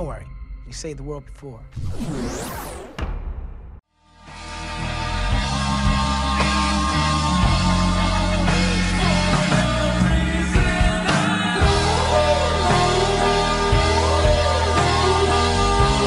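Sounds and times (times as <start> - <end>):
song with singing: 5.8 - 16.0.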